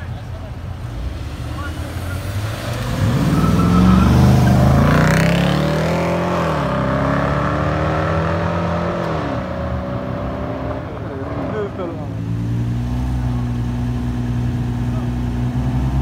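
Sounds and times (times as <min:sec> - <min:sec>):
car engine accelerating past: 0:01.1 - 0:11.8.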